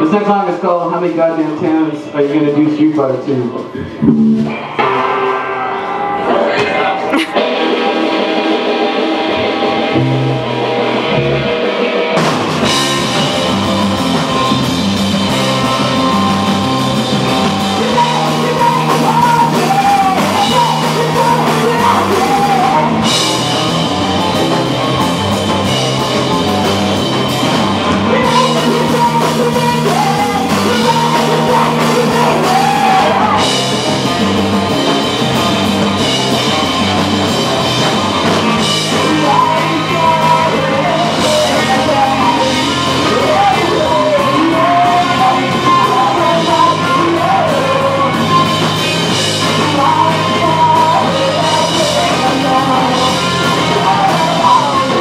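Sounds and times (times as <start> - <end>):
bass and guitar: 0.0 - 55.0
drums and cymbals: 2.7 - 55.0
person singing: 15.3 - 34.2, 38.6 - 55.0.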